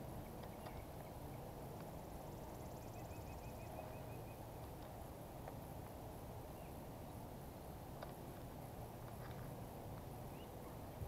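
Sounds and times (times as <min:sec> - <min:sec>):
bird chirping: 0:00.2 - 0:01.5, 0:02.4 - 0:04.5, 0:10.3 - 0:11.0.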